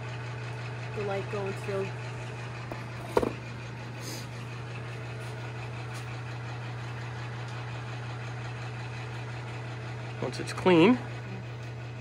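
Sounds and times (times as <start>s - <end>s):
steady low hum: 0.1s - 12.0s.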